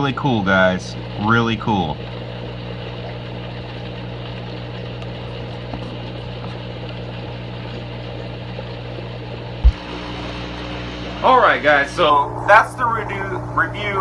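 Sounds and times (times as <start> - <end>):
aquarium pump hum: 0.0 - 14.0.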